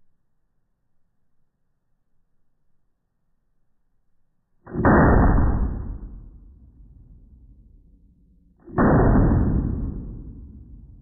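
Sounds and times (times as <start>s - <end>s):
slowed-down pistol shots: 4.7s - 7.8s, 8.6s - 11.0s.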